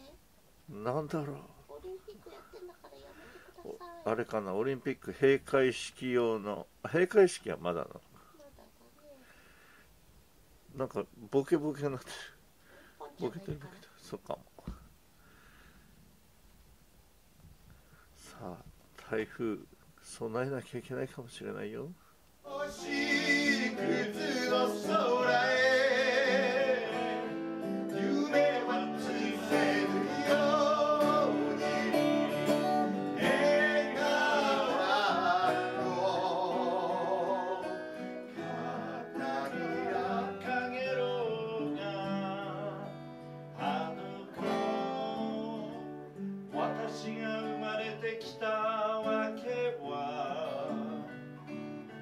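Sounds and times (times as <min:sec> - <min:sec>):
acoustic guitars: 0:22.0 - 0:52.0
men singing with vibrato: 0:22.4 - 0:51.2.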